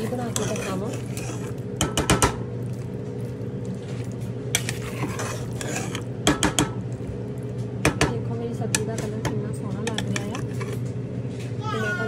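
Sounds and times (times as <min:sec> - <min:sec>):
metal spoon scraping pot: 0:00.0 - 0:02.2, 0:04.5 - 0:06.6, 0:09.8 - 0:10.9
steady low hum: 0:00.0 - 0:12.0.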